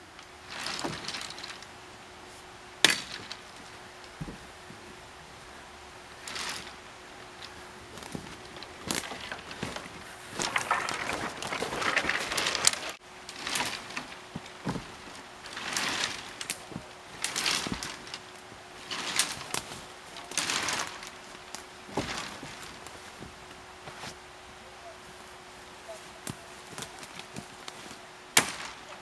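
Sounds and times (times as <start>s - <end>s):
branches rustling and snapping: 0.0s - 29.0s
footsteps crunching through dry leaves: 6.2s - 24.2s.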